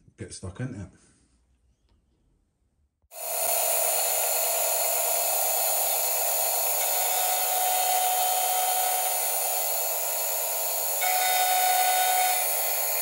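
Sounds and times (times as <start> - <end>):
milling machine cutting metal: 3.2 - 13.0.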